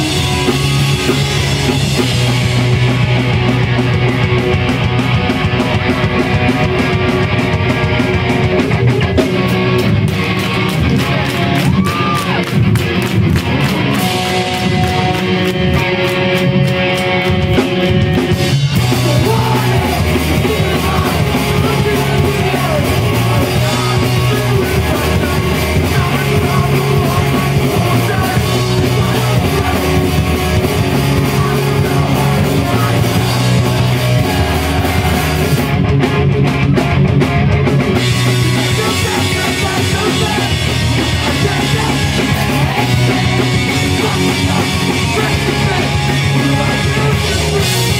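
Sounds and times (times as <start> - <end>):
pop-punk band playing live: 0.0 - 47.9
person singing: 18.8 - 35.7, 38.2 - 47.9.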